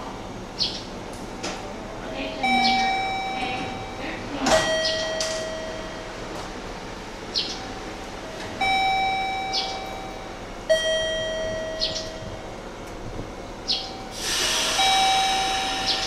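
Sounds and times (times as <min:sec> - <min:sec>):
electronic ding-dong chime: 0:02.4 - 0:06.2, 0:08.6 - 0:12.4, 0:14.8 - 0:15.8.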